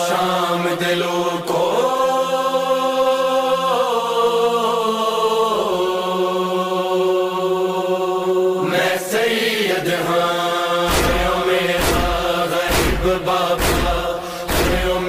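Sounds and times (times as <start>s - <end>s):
chanted vocal drone: 0.0s - 15.0s
deep thumps: 10.9s - 15.0s
rough rhythmic strokes: 10.9s - 15.0s.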